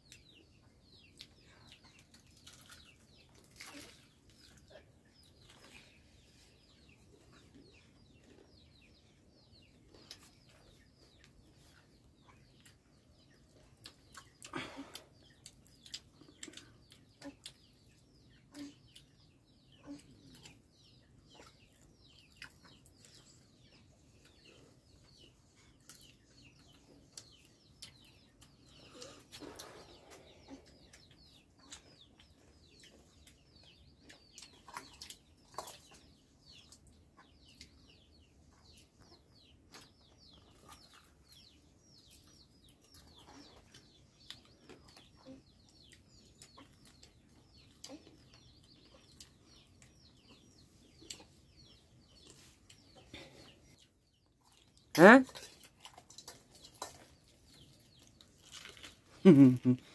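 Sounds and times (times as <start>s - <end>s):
faint bird chirps: 56.2s - 59.9s.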